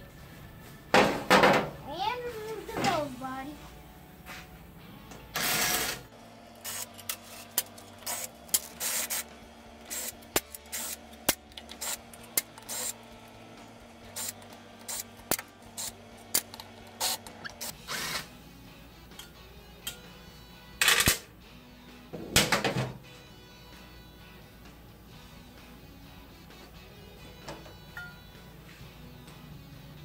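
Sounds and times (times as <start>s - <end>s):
power driver whirring: 5.3s - 18.4s.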